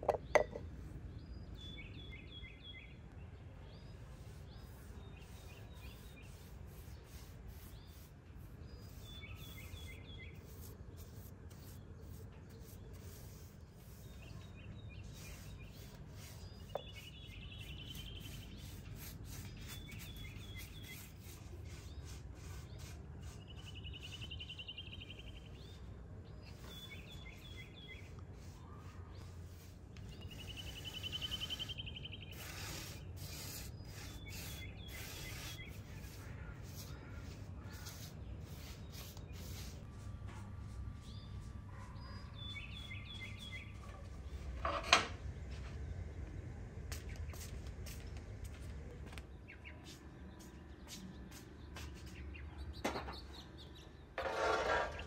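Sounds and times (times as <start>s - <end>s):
paintbrush scrubbing wood: 4.0s - 24.4s, 26.4s - 41.5s
bird singing trills: 30.1s - 32.5s, 33.7s - 38.8s.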